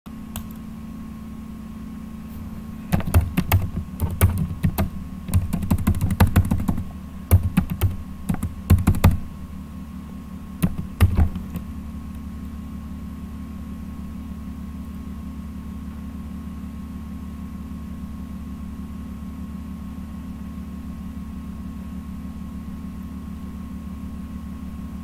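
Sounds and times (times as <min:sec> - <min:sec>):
low electrical hum: 0:00.1 - 0:25.0
keyboard keystroke clicks: 0:00.3 - 0:00.6, 0:02.9 - 0:09.3, 0:10.6 - 0:11.7.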